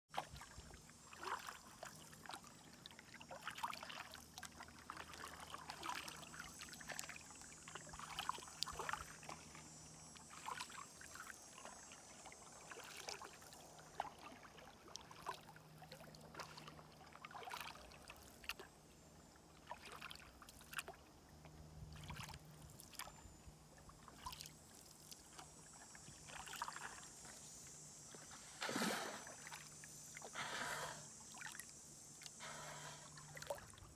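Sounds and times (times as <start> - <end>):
paddles splashing in water: 0.1 - 9.5, 12.6 - 18.6, 19.6 - 21.0, 28.1 - 31.6.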